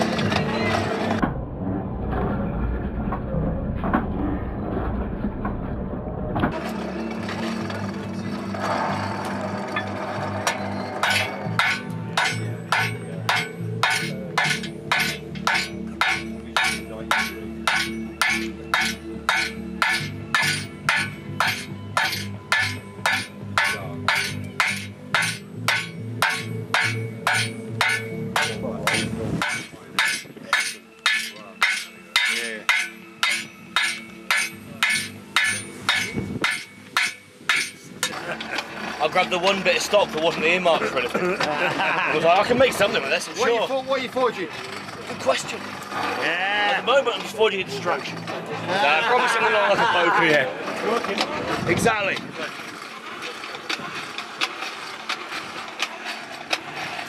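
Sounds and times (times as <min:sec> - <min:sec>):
steady low hum: 0:00.0 - 0:46.2
hammer striking steel on anvil: 0:08.6 - 0:38.6.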